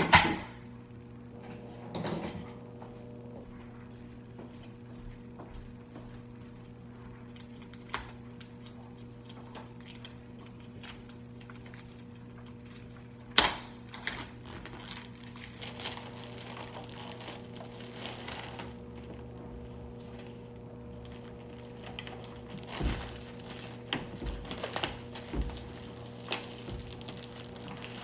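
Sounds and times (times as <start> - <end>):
plastic film crackling: 7.4 - 28.0.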